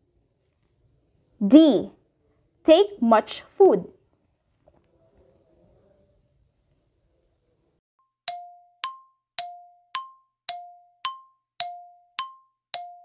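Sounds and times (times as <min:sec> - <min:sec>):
alternating timer dings: 0:08.3 - 0:13.0.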